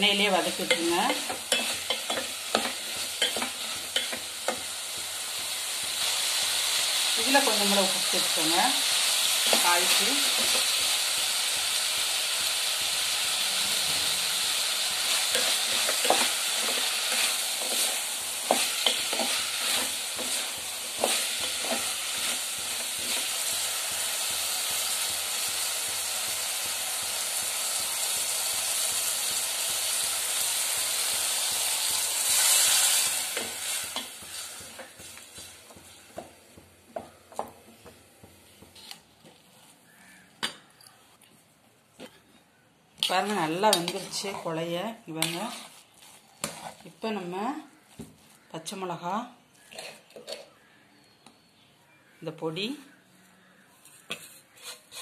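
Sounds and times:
vegetables sizzling in hot oil: 0.0s - 36.9s, 43.0s - 47.7s
wooden spatula scraping pan: 45.2s - 47.0s, 49.6s - 50.5s, 53.9s - 55.0s.

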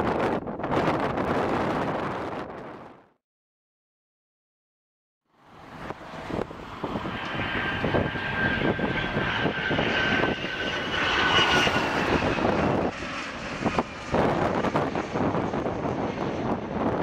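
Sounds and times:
wind buffeting microphone: 0.0s - 3.1s, 5.6s - 17.0s
jet engines whining: 5.4s - 17.0s.

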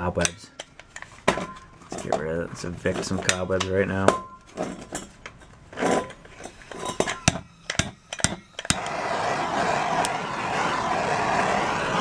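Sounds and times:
gas torch hissing: 8.0s - 12.0s.

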